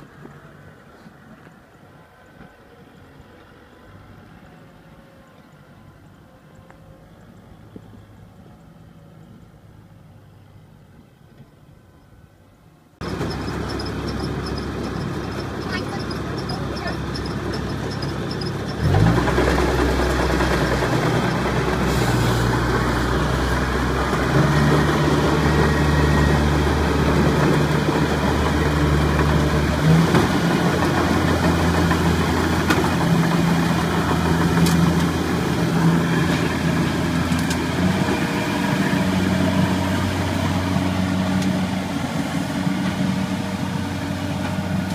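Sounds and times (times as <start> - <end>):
combine harvester diesel engine revving: 13.0 - 44.9.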